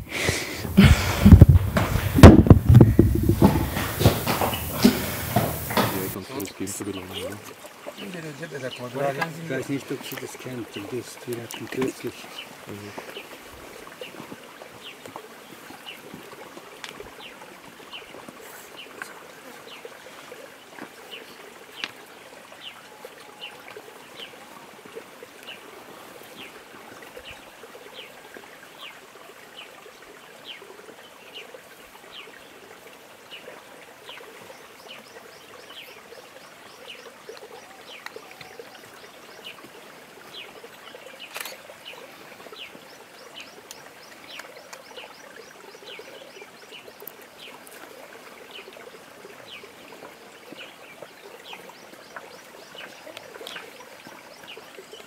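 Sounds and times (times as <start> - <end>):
steady hiss: 0.0 - 7.4
bird chirping: 0.6 - 7.3
brief knock: 1.2 - 6.2.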